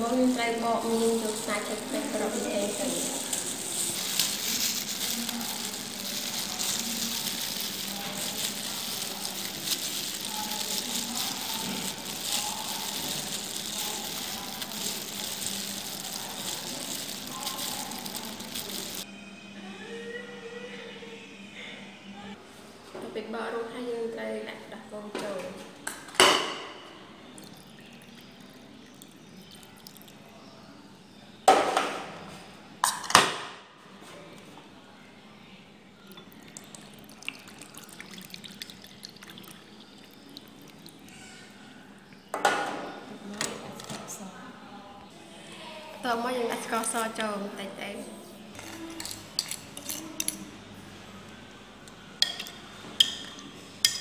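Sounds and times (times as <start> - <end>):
milk splashing into bowl: 27.3 - 30.2, 36.0 - 41.2.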